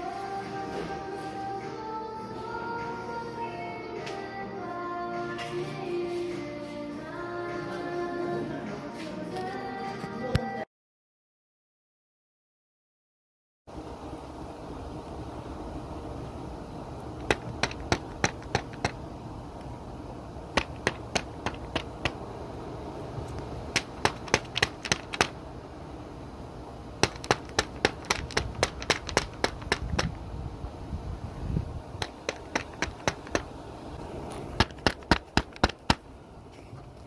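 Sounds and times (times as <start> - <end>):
steady low hum: 13.7 - 37.0
runs of sharp clicks: 17.2 - 19.0, 20.6 - 22.2, 23.3 - 25.4, 27.0 - 30.2, 32.0 - 33.5.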